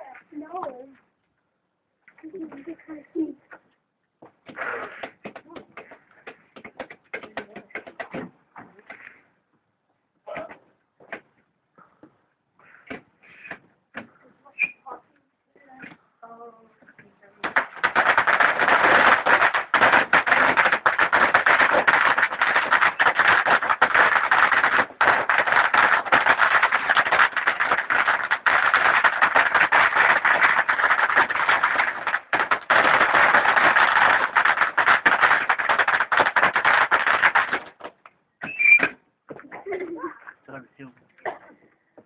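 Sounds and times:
firework fountain crackling hiss: 0:17.3 - 0:37.9.

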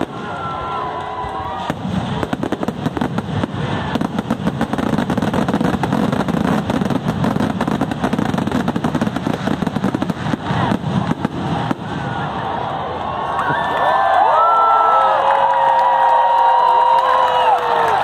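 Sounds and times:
fireworks bangs and crackles: 0:00.0 - 0:13.6.

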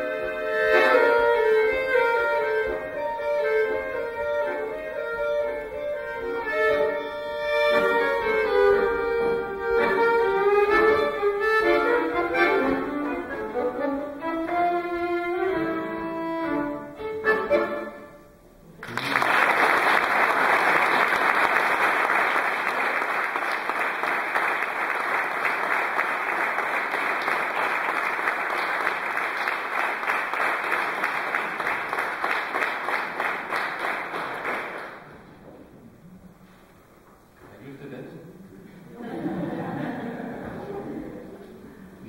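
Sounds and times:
violin: 0:00.0 - 0:18.2
accordion: 0:00.0 - 0:18.5
audience applauding: 0:18.8 - 0:35.2.

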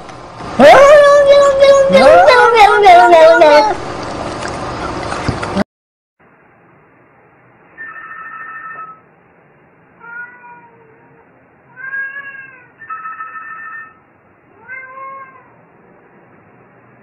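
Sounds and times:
telephone ringing: 0:07.8 - 0:09.0
cat meowing: 0:10.0 - 0:15.6.

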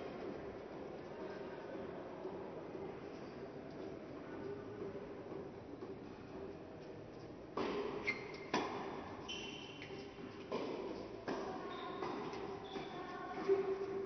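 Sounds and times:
tennis ball hit by racket: 0:07.6 - 0:09.1
tennis ball bouncing on court: 0:07.6 - 0:09.2, 0:09.8 - 0:14.0.

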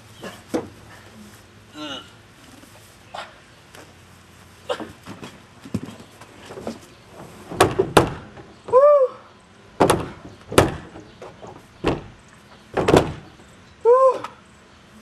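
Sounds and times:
plastic shed doors banging: 0:05.1 - 0:08.9, 0:09.8 - 0:13.5.

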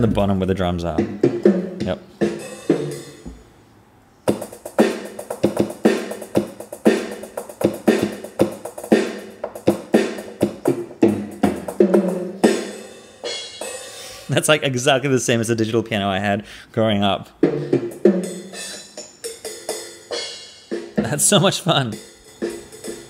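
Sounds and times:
keyboard drum and cymbal hits: 0:00.9 - 0:03.5, 0:04.3 - 0:14.4, 0:17.4 - 0:23.0.

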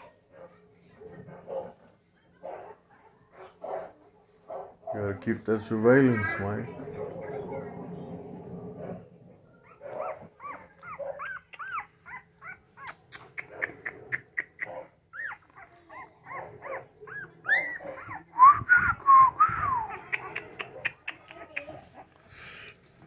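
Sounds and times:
puppies squeaking and whimpering: 0:09.5 - 0:18.4, 0:19.7 - 0:21.6.

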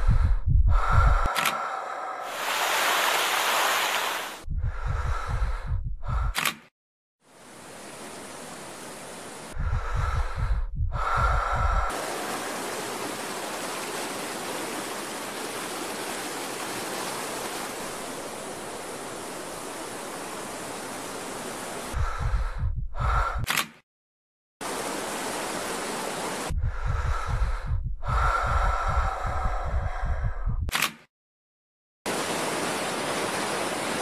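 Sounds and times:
low rumbling pulses: 0:00.0 - 0:01.3, 0:04.4 - 0:06.3, 0:09.6 - 0:11.9, 0:26.5 - 0:30.7
river rushing over rapids: 0:11.9 - 0:21.9, 0:24.7 - 0:26.5, 0:32.1 - 0:34.0.

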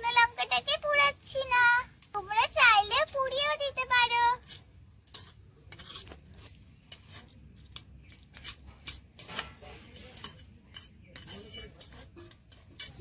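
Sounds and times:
metal spatula scraping clay pan: 0:03.8 - 0:13.0.

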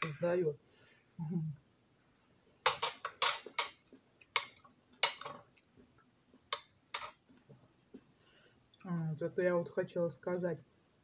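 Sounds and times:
cutlery clinking against plate: 0:02.6 - 0:05.5, 0:06.5 - 0:07.2.

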